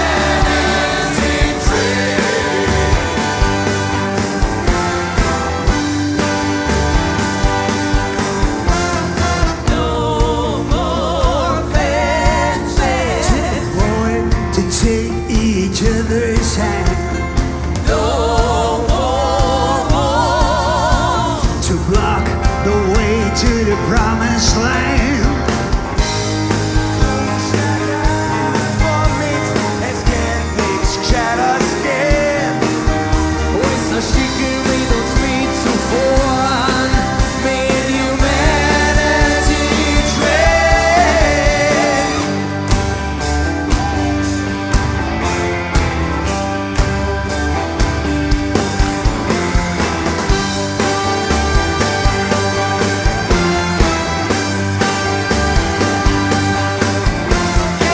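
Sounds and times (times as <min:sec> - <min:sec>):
person singing with vibrato: 0:00.0 - 0:04.0, 0:09.4 - 0:25.6, 0:27.0 - 0:42.6
trumpet: 0:00.0 - 0:10.7, 0:24.6 - 0:44.8, 0:50.0 - 0:57.9
live pop-rock band: 0:00.0 - 0:57.9
steady drum beat: 0:00.0 - 0:57.9.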